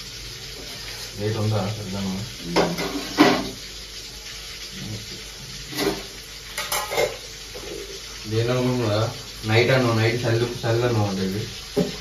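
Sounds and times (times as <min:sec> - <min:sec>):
fish sizzling in a frying pan: 0:00.0 - 0:12.0
steel utensils clattering: 0:06.6 - 0:07.2.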